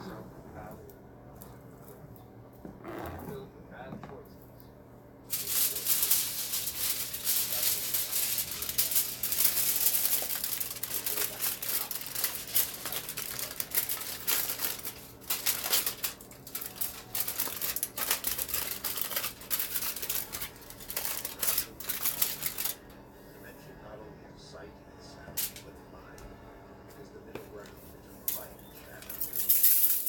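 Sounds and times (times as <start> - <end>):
aluminium foil crinkling: 5.3 - 22.8, 25.4 - 25.6, 28.2 - 30.0.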